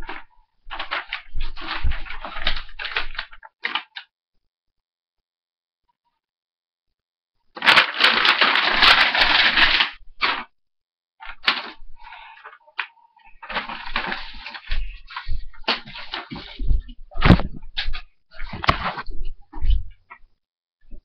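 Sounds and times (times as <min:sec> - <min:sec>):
loud rustling and clattering: 0:00.0 - 0:04.0, 0:07.6 - 0:10.5, 0:11.2 - 0:19.7.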